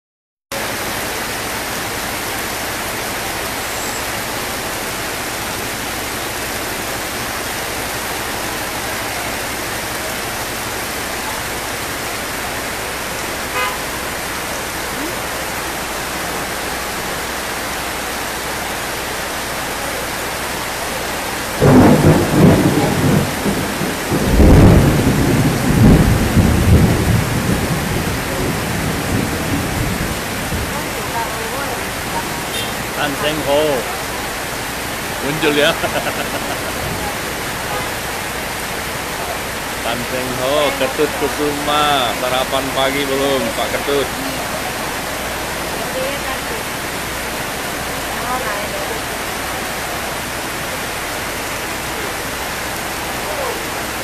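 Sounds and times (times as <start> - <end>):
heavy rain: 0.5 - 54.0
thunder rumbling: 21.6 - 33.5.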